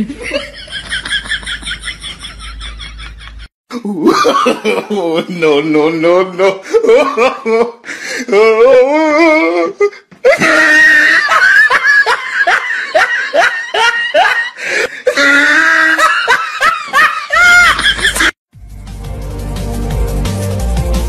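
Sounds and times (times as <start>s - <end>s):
high-pitched laughter: 15.1s - 18.4s
bass-heavy electronic music: 18.6s - 21.0s.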